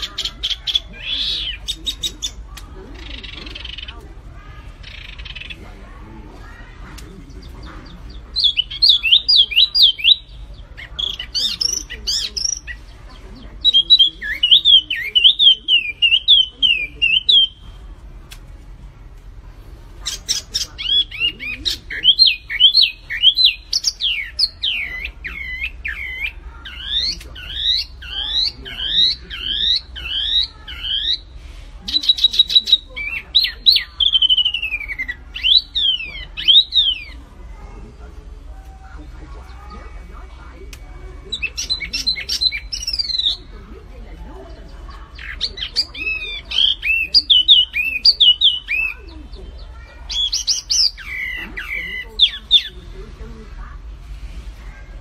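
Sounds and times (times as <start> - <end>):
songbird singing whistled notes: 7.3 - 17.8, 20.0 - 31.3, 31.9 - 37.2, 38.6 - 43.5.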